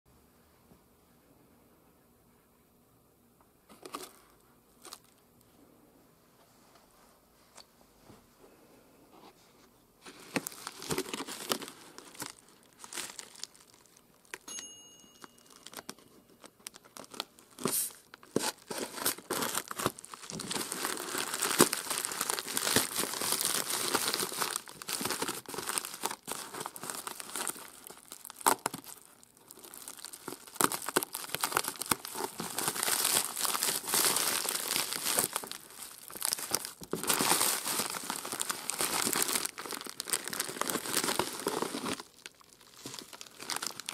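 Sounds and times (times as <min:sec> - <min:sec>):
plastic bag rustling: 0:10.0 - 0:14.4, 0:15.5 - 0:43.9
plastic crinkling and tearing: 0:10.1 - 0:14.5, 0:15.5 - 0:43.9.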